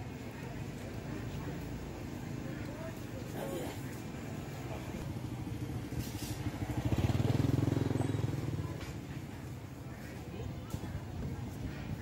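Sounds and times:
motorbike engine passing: 4.5s - 9.9s.

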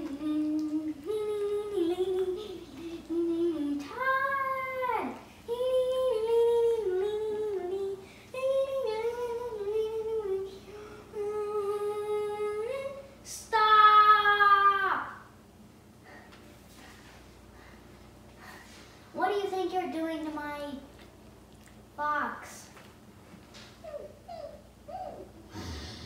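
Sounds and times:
child singing wordless tune: 0.0s - 10.6s, 11.2s - 15.3s.

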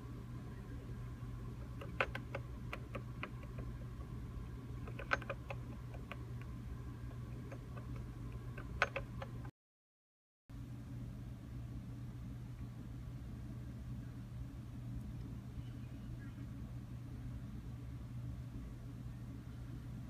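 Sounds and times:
low equipment hum: 0.0s - 9.5s, 10.5s - 20.0s
small clicks and ticks: 1.6s - 9.5s.

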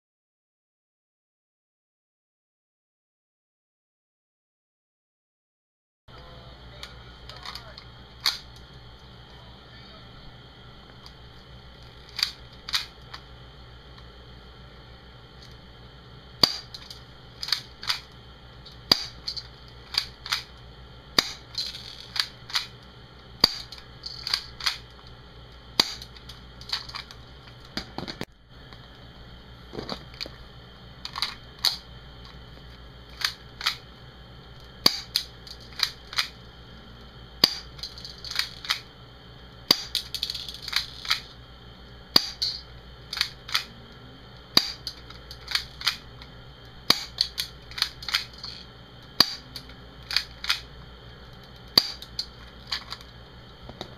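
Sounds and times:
airsoft pistol shots: 16.4s - 16.7s.

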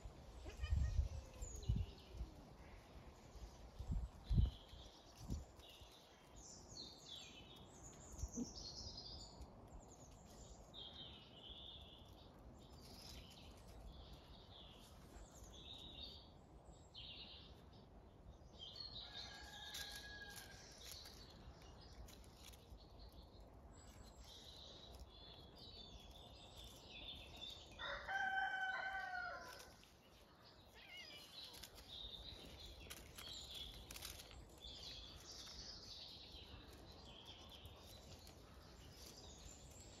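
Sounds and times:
small birds chirping: 0.0s - 40.0s
rooster crowing: 27.8s - 29.7s.

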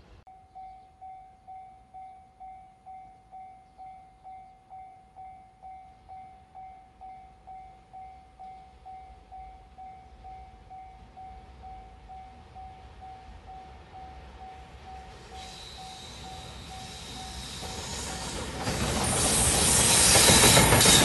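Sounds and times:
level crossing warning bell: 0.3s - 17.9s.

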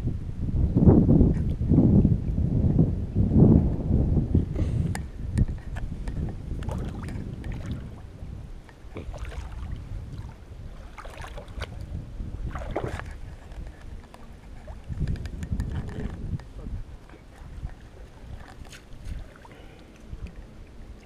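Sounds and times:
wind rumbling on microphone: 0.0s - 21.0s
water sloshing and splashing: 5.5s - 21.0s.

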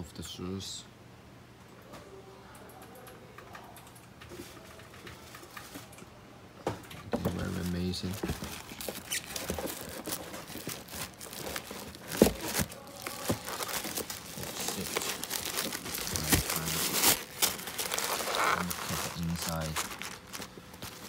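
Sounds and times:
tissue paper crinkling: 7.4s - 21.0s.

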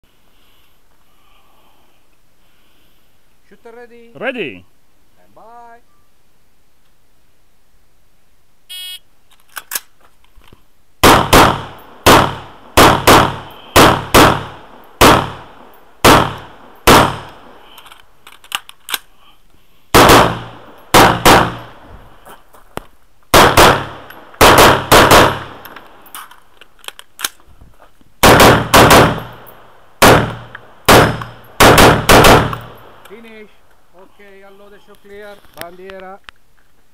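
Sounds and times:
rifle gunshots: 11.0s - 17.5s, 19.9s - 21.8s, 23.3s - 25.6s, 28.2s - 33.1s.

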